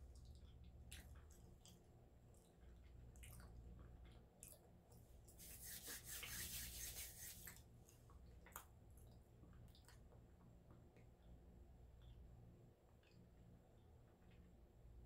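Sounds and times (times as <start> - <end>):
faint low hum: 0.0 - 15.0
hands rubbing together: 5.3 - 7.6.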